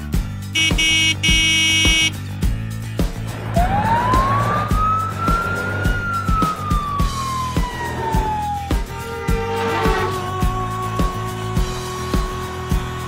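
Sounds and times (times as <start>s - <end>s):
background music with steady beat: 0.0s - 9.0s.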